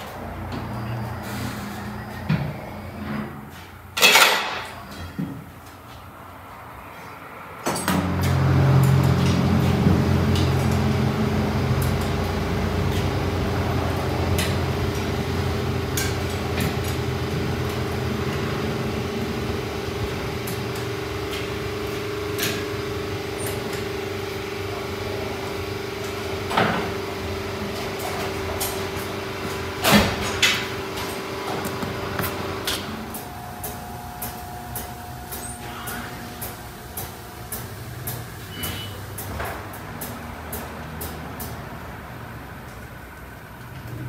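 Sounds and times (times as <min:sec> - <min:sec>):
clicks and metal clanks: 0:04.0 - 0:05.8
machine hum: 0:06.5 - 0:39.2.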